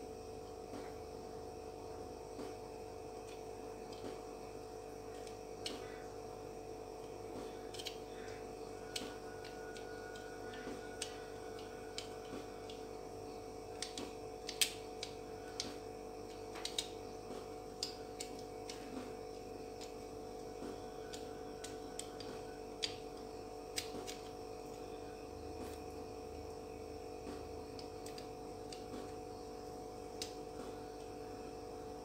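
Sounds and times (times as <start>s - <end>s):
steady low hum: 0.0s - 32.0s
small clicks and ticks: 13.7s - 17.0s.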